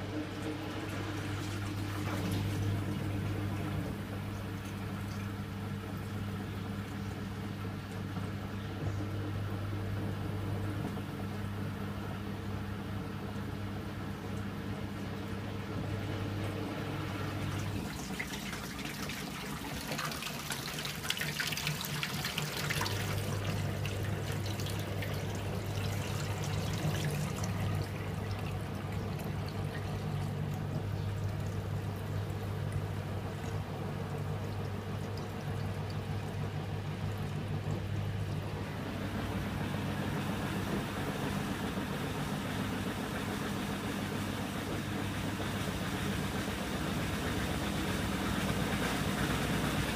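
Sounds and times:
washing machine motor hum: 0:00.0 - 0:49.9
water pouring into steel sink: 0:17.4 - 0:31.9.

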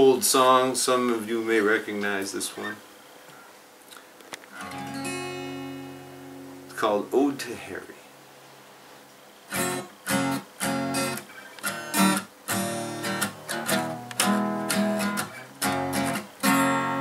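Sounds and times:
acoustic guitar strumming: 0:04.6 - 0:06.9, 0:09.5 - 0:17.0.

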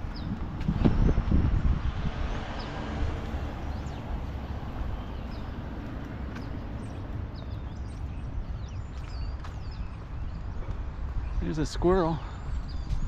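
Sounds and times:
small birds chirping: 0:00.0 - 0:13.0
wind buffeting microphone: 0:00.0 - 0:13.0.

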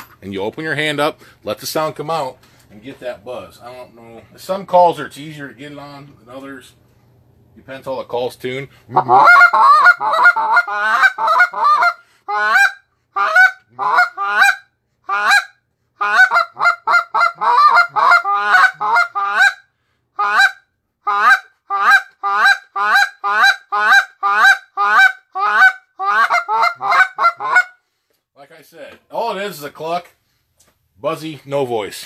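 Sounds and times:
goose call buzz clucks: 0:08.9 - 0:27.8.

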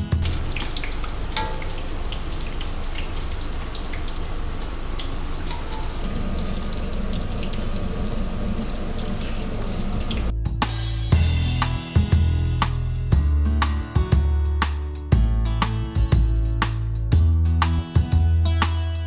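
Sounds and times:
food deep-frying in hot oil: 0:00.0 - 0:10.3.

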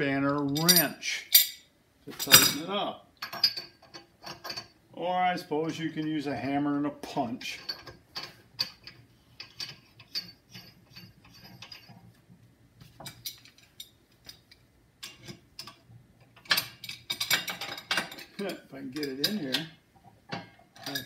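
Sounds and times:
metal clicks and clinks: 0:20.3 - 0:21.0.

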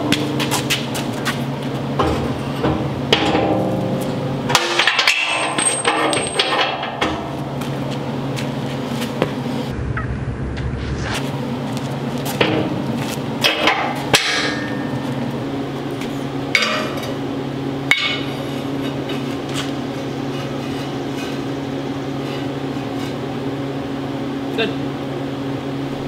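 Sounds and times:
steady low hum: 0:00.0 - 0:26.0
metal knocks and clanks: 0:01.9 - 0:07.4, 0:12.4 - 0:15.2.

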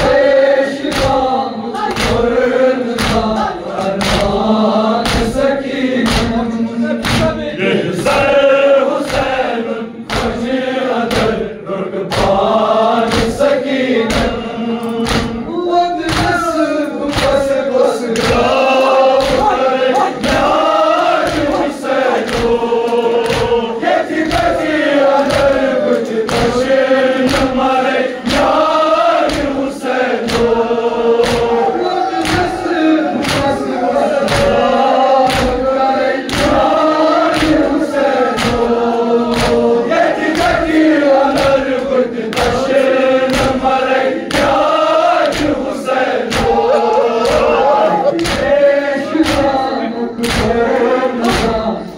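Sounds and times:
crowd of men chanting a lament: 0:00.0 - 0:51.9
open-handed chest slaps: 0:00.9 - 0:01.2, 0:01.8 - 0:02.3, 0:03.0 - 0:04.4, 0:06.0 - 0:06.3, 0:10.1 - 0:10.4, 0:15.0 - 0:15.4, 0:16.1 - 0:16.4, 0:17.1 - 0:17.4, 0:19.2 - 0:20.5, 0:30.2 - 0:30.6, 0:31.2 - 0:31.6, 0:35.2 - 0:35.6, 0:36.3 - 0:36.6, 0:37.3 - 0:37.6, 0:38.3 - 0:38.7, 0:39.3 - 0:39.6.

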